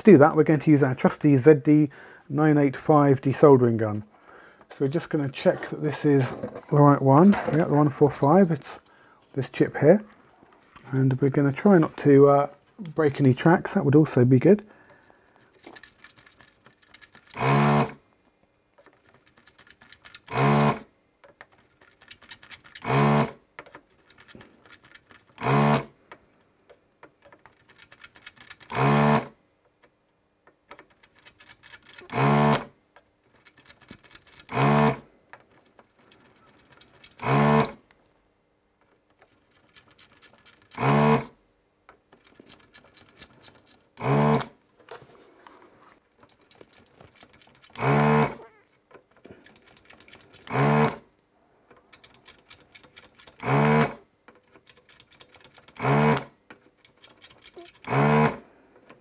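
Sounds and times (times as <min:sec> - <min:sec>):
vacuum pump buzzing: 0:17.3 - 0:18.0, 0:20.3 - 0:20.8, 0:22.8 - 0:23.4, 0:25.4 - 0:25.9, 0:28.7 - 0:29.3, 0:32.1 - 0:32.7, 0:34.5 - 0:35.0, 0:37.2 - 0:37.8, 0:40.8 - 0:41.3, 0:44.0 - 0:44.6, 0:47.7 - 0:48.5, 0:50.4 - 0:51.0, 0:53.4 - 0:54.0, 0:55.8 - 0:56.3, 0:57.8 - 0:58.5.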